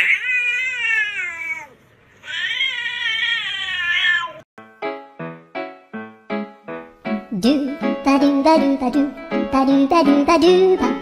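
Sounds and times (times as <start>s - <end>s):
cat meowing: 0.0s - 4.4s.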